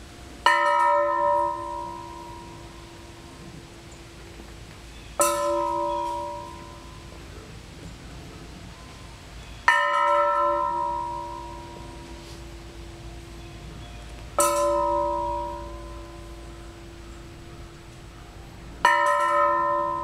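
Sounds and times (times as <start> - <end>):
metal bell ringing: 5.2 - 7.1, 14.4 - 17.5.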